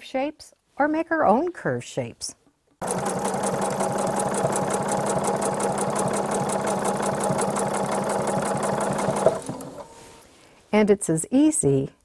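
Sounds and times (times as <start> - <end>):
sewing machine running: 2.8 - 10.0
sewing machine stopping click: 2.8 - 10.0.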